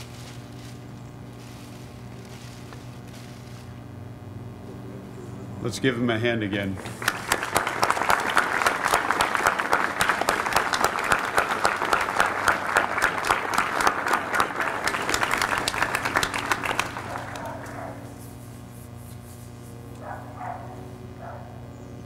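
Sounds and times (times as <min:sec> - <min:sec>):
crowd applauding: 0:06.8 - 0:18.0.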